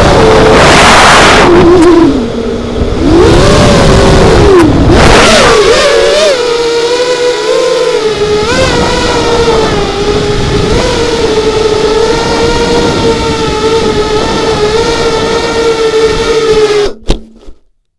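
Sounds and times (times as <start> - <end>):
rush of air: 0.0 - 6.5
drone propellers whining: 0.0 - 17.5.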